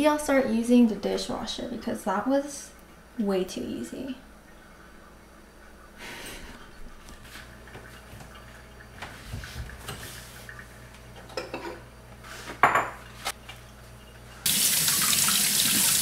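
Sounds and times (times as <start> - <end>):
dishes clinking: 11.2 - 11.9, 12.5 - 13.2
faucet running into sink: 14.4 - 16.0.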